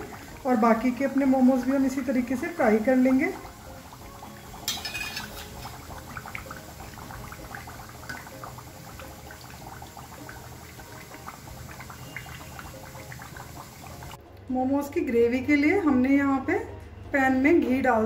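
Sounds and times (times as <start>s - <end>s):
hot oil sizzling and crackling: 0.0s - 14.2s.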